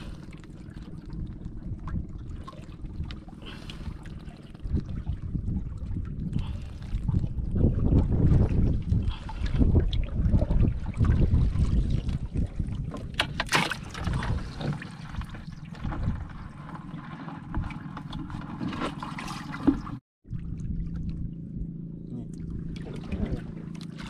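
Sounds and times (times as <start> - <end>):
wind rumble on microphone: 0.0 - 24.0
water splashing in a bucket: 7.8 - 21.2.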